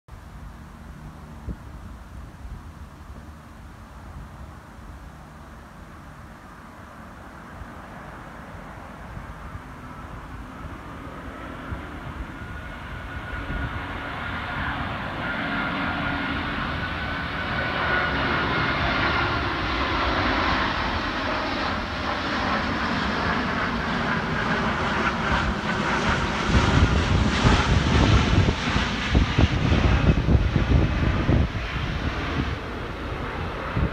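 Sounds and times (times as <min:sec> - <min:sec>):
jet airliner roar passing overhead: 0:00.2 - 0:33.9.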